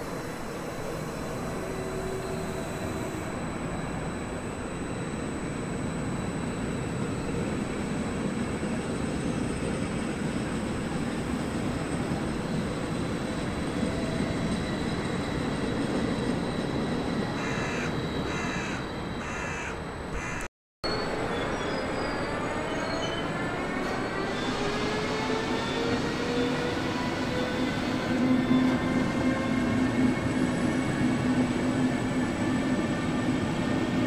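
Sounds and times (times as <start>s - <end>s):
faint high whine: 0.0s - 20.2s
railway traffic rumble: 0.0s - 34.0s
crow cawing: 17.4s - 20.5s.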